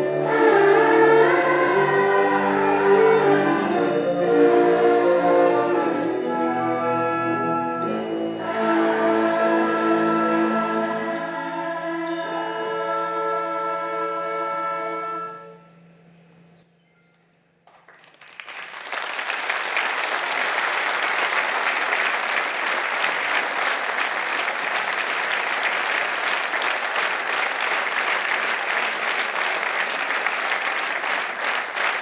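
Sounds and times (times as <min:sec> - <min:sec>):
audience applauding: 0:17.7 - 0:32.0.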